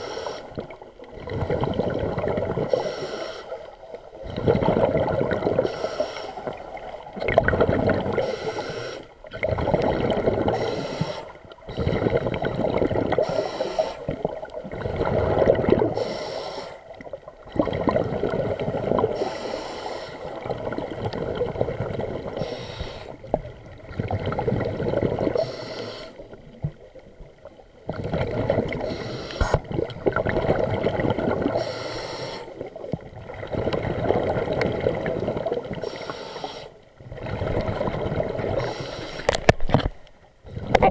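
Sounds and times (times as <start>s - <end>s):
regulator hiss on inhalation: 0.0s - 0.6s, 2.7s - 3.7s, 5.6s - 6.5s, 8.2s - 9.1s, 10.5s - 11.4s, 13.2s - 14.1s, 16.0s - 16.8s, 19.2s - 20.3s, 22.4s - 23.2s, 25.4s - 26.2s, 28.8s - 29.6s, 31.6s - 32.6s, 35.8s - 36.8s, 38.6s - 39.3s
gurgling exhaled bubbles: 0.0s - 3.0s, 3.6s - 16.1s, 16.9s - 19.5s, 20.2s - 35.8s, 36.9s - 39.8s, 40.4s - 40.9s.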